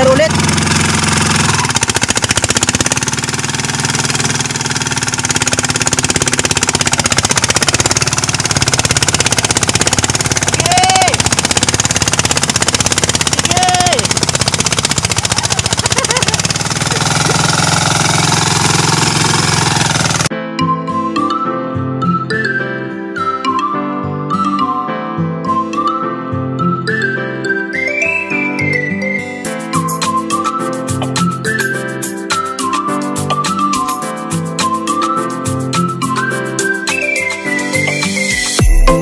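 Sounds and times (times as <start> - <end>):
boat engine rattling knock: 0.3 - 20.3.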